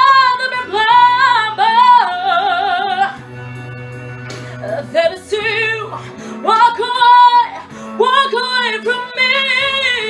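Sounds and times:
sustained instrumental accompaniment: 0.0 - 9.0.

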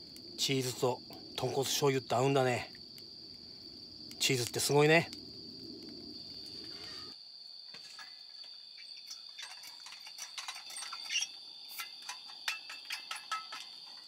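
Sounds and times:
campfire crackling and popping: 0.0 - 7.1
crickets trilling: 0.0 - 14.0.

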